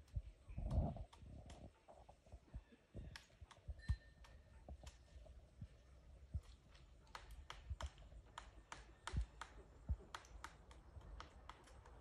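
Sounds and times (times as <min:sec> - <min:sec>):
woodpecker knocking on wood: 0:07.1 - 0:12.0.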